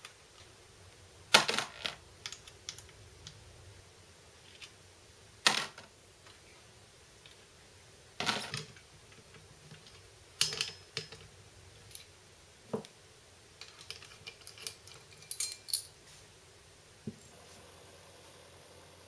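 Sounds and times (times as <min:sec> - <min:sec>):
metal clicks and clatters: 0:13.6 - 0:15.9
light ticking clinks: 0:14.3 - 0:16.0.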